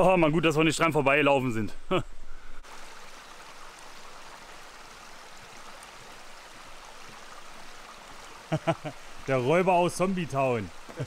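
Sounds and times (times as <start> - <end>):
brook flowing: 2.3 - 11.0.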